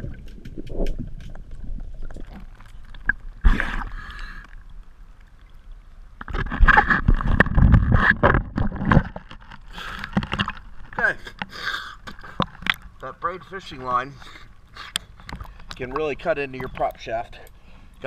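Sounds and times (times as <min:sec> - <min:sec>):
bubbling: 0:00.0 - 0:13.2
water sloshing and splashing: 0:00.0 - 0:18.0.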